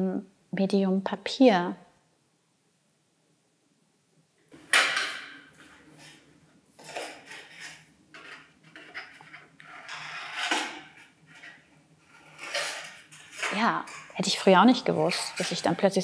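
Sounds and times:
paper rustling: 4.8s - 16.0s.

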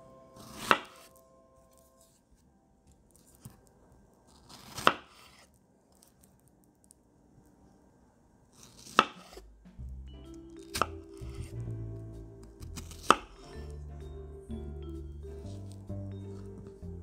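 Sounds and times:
knife slicing strawberries: 4.3s - 6.1s, 8.6s - 9.4s.

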